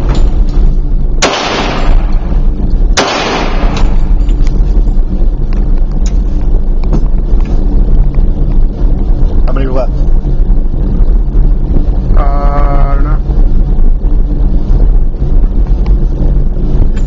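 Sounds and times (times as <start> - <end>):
low rumble: 0.0 - 17.0
pistol shots echoing: 1.2 - 2.1, 3.0 - 3.8.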